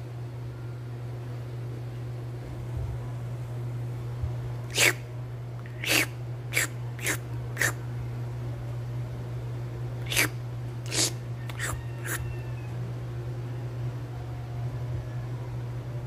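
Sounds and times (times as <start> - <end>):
person making wet slurping noises: 4.7 - 5.0, 5.6 - 7.8, 10.0 - 12.2.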